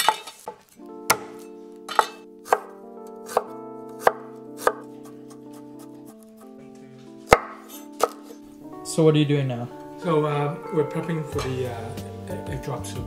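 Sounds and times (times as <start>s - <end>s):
cleaver chopping on wooden board: 0.0s - 5.4s, 7.3s - 8.3s
soft background music: 0.5s - 13.0s.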